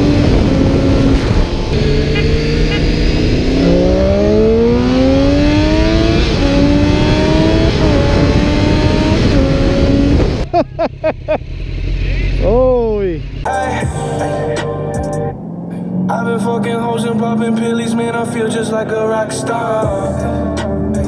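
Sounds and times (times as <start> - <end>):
wind rush: 0.0 - 10.5
engine accelerating through gears: 0.0 - 13.5, 15.3 - 20.0.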